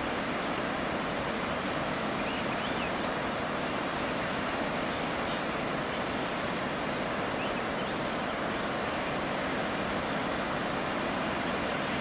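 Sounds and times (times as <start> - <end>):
waterfall rushing: 0.0 - 12.0
faint bird chirps and whistles: 2.2 - 4.0.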